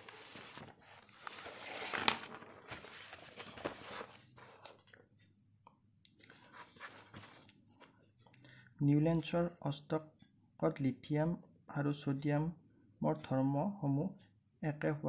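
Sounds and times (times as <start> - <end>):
paper rustling: 0.0 - 5.0, 6.2 - 7.9.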